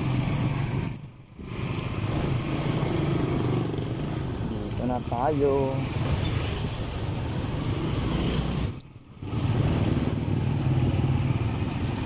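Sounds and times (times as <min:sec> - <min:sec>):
road noise on wet street: 0:00.0 - 0:12.0.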